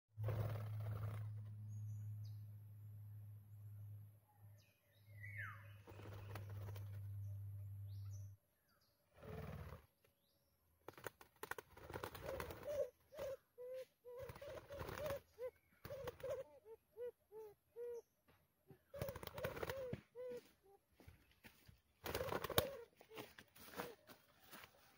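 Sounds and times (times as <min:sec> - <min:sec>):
wings flapping: 0:00.2 - 0:01.6, 0:05.8 - 0:07.2, 0:10.9 - 0:13.4, 0:14.1 - 0:16.5, 0:19.0 - 0:20.4, 0:22.0 - 0:24.0
dove cooing: 0:12.0 - 0:18.1, 0:18.7 - 0:20.8, 0:22.0 - 0:24.1.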